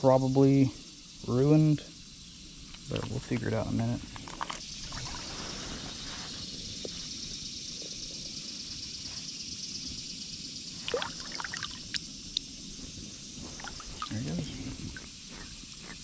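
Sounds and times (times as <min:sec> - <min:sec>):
shallow water trickling and sloshing: 0:04.1 - 0:06.2, 0:10.8 - 0:15.9
small water splashes: 0:04.3 - 0:05.3, 0:10.8 - 0:12.0, 0:13.6 - 0:14.1.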